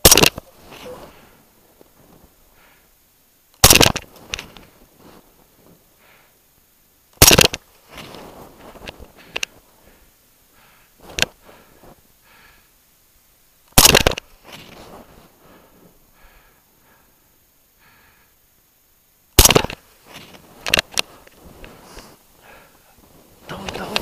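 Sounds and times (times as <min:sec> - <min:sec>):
sharp rifle clicks: 0:00.0 - 0:00.5, 0:03.6 - 0:04.6, 0:07.2 - 0:07.7, 0:13.7 - 0:14.3, 0:19.4 - 0:19.8, 0:20.6 - 0:21.1
heavy breathing: 0:00.5 - 0:03.0, 0:04.6 - 0:06.5, 0:09.0 - 0:12.9, 0:15.0 - 0:18.5, 0:20.3 - 0:24.0.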